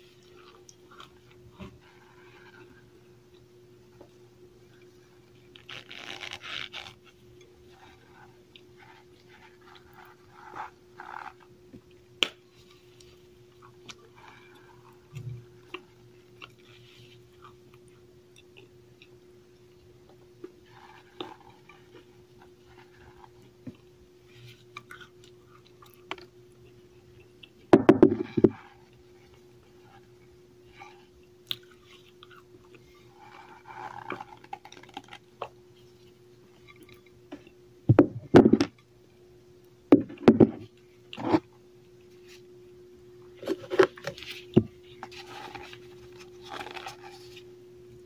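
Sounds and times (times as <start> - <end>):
powdery crunching while chewing: 31.4 - 35.9.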